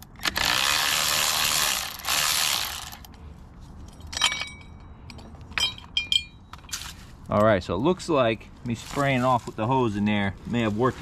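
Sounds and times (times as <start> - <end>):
cordless ratchet whirring: 0.0 - 3.2
light metal clinks: 3.7 - 7.5.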